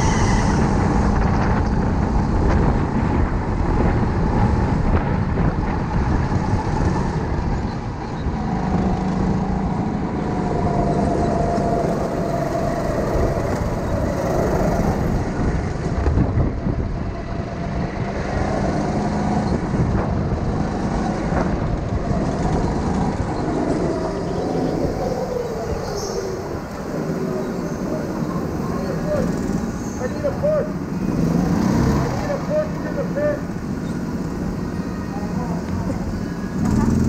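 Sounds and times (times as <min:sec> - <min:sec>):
rushing noise: 0:00.0 - 0:37.0
go-kart motor revving: 0:08.3 - 0:16.1, 0:17.4 - 0:37.0.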